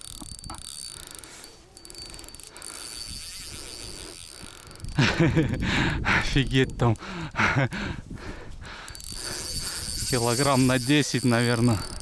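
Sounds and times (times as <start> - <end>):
fishing reel drag clicking: 0.0 - 7.2, 8.7 - 12.0
man talking: 10.1 - 11.9.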